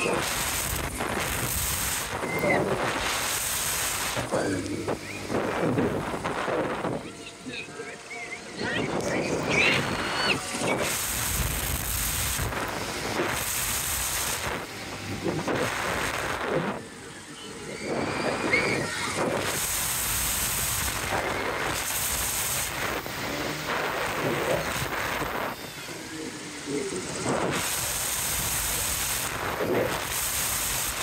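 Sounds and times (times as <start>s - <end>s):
wind rushing over microphone: 0.0s - 7.6s, 8.5s - 16.9s, 17.8s - 31.0s
riders' voices: 0.0s - 11.4s, 22.6s - 30.1s.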